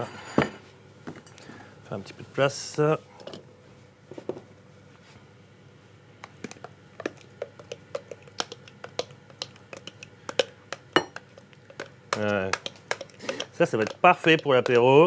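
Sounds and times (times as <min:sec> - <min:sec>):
spatula scraping blender jar: 0:11.6 - 0:14.8.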